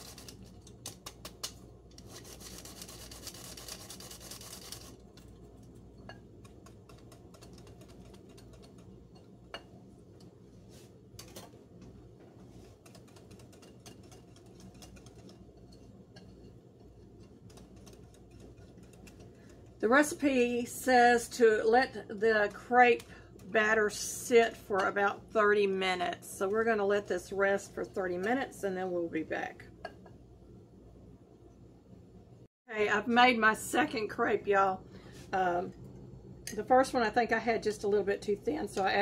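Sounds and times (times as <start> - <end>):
flour sifter clicking and rasping: 0.0 - 9.5, 12.4 - 20.3.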